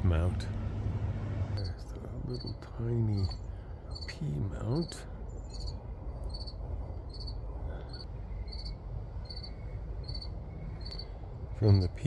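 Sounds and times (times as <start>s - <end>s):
low rumble: 0.0s - 1.7s
cricket chirping: 1.6s - 2.6s, 3.2s - 4.1s, 4.7s - 11.6s.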